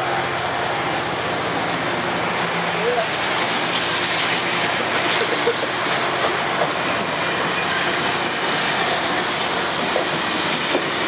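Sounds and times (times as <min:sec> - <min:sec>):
train wheels rushing on rail: 0:00.0 - 0:11.0.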